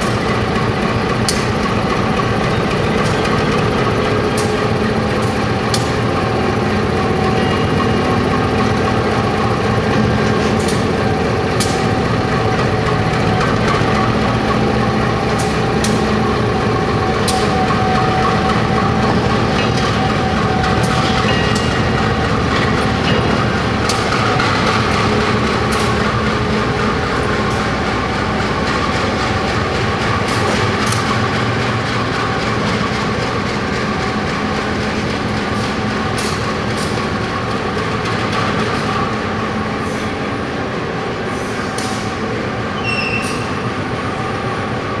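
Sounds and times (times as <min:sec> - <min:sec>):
diesel locomotive engine running: 0:00.0 - 0:45.0
short squeak: 0:42.8 - 0:43.6.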